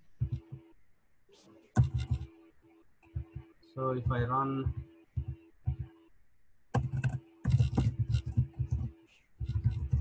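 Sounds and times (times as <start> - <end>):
computer keyboard typing: 0.2 - 0.7, 1.7 - 2.4, 3.0 - 5.9, 6.7 - 10.0.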